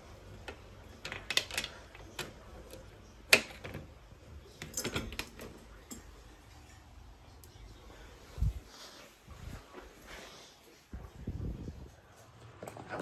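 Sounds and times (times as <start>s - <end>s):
crate door bars rattling: 0.5s - 6.1s.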